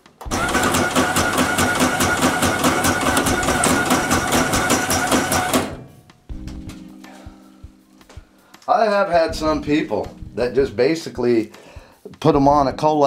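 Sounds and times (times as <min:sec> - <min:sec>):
trimming machine motor: 0:00.2 - 0:05.8
fast machine clatter: 0:00.3 - 0:05.9.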